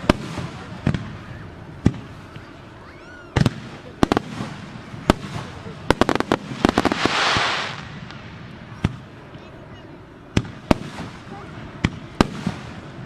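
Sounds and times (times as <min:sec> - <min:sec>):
firework shells bursting: 0:05.1 - 0:09.0.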